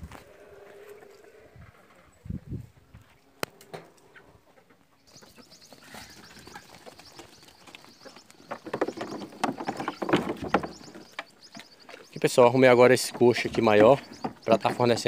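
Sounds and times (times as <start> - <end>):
small birds chirping: 4.1 - 15.0
sheep knocking against trough: 8.4 - 11.2.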